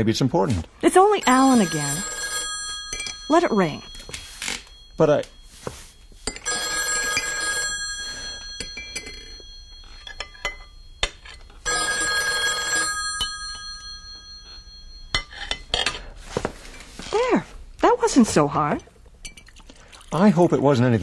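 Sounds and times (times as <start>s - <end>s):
telephone bell ringing: 1.1s - 15.5s.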